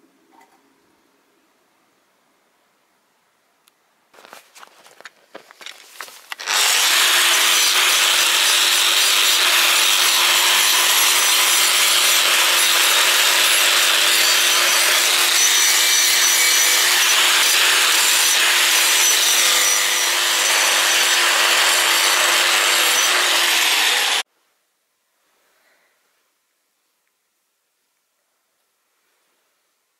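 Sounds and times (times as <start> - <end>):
angle grinder wire brush on metal: 6.0 - 24.2.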